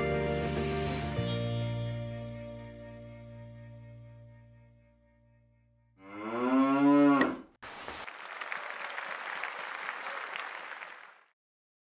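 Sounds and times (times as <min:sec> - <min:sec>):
cow mooing: 0:06.0 - 0:07.5.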